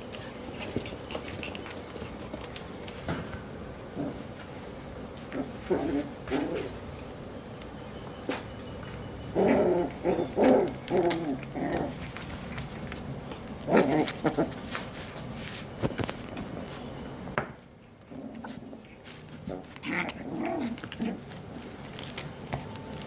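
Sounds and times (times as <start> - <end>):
puppies barking and growling: 0.0 - 2.7, 9.3 - 14.8, 17.9 - 21.9.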